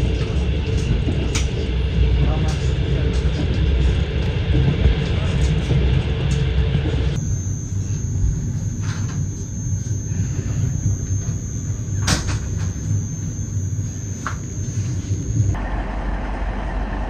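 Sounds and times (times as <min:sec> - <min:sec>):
train rumbling along track: 0:00.0 - 0:07.2, 0:08.8 - 0:17.0
thin high whine: 0:07.1 - 0:15.8.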